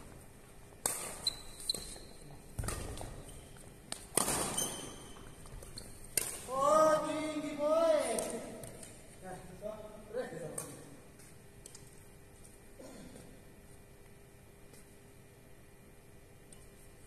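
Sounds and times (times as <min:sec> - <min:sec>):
badminton rackets hitting shuttlecock: 0:00.8 - 0:02.0, 0:03.9 - 0:06.6
shoe squeaks on court floor: 0:01.0 - 0:03.6, 0:04.2 - 0:06.2
player shouting: 0:06.5 - 0:08.4.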